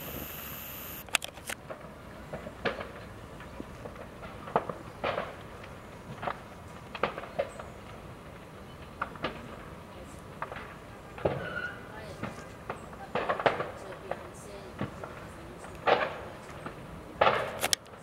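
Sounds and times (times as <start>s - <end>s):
sharp pops and knocks: 3.8s - 8.0s.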